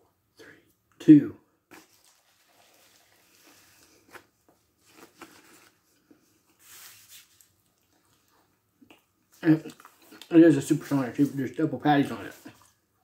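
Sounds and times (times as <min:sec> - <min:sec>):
faint chewing: 0:07.3 - 0:10.4
soft crunches and mouth clicks: 0:07.3 - 0:10.4.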